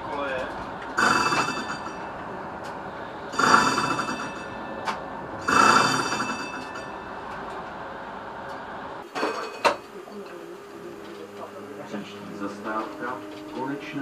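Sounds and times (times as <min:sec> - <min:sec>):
tram running on rails: 0:00.0 - 0:14.0
tram warning bell ringing: 0:01.0 - 0:02.4, 0:03.0 - 0:08.4, 0:11.5 - 0:14.0.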